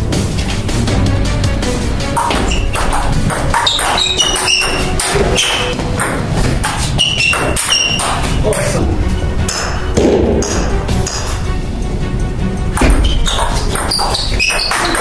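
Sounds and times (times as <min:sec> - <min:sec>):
background music: 0:00.0 - 0:15.0
table tennis ball bouncing: 0:02.1 - 0:08.7, 0:09.5 - 0:11.4, 0:12.7 - 0:15.0.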